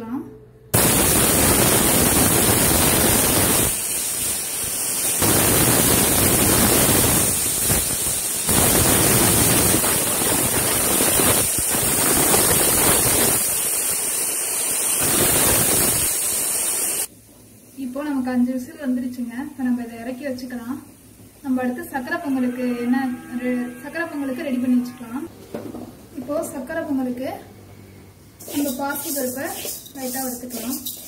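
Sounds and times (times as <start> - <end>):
pressure cooker steam hissing: 0.8 - 17.1, 28.4 - 31.0.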